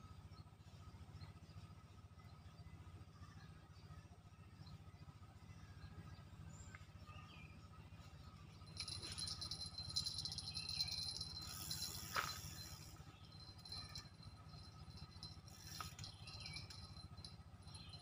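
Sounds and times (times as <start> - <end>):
fishing reel whirring: 8.7 - 18.0.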